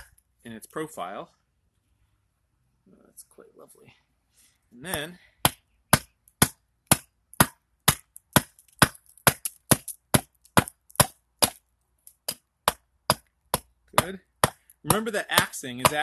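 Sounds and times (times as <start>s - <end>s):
hatchet chopping wood: 4.9s - 11.6s, 12.2s - 16.0s.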